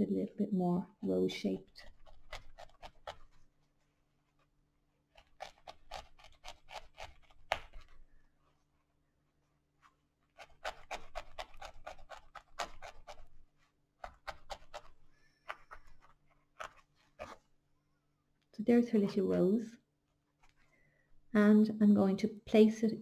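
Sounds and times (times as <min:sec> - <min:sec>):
felting needle poking into foam: 0:01.8 - 0:03.6, 0:04.3 - 0:08.1, 0:10.2 - 0:17.6.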